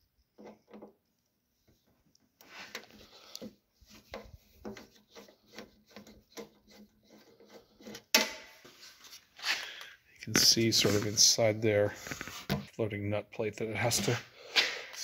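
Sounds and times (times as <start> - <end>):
screwdriver scraping metal: 4.2 - 8.1.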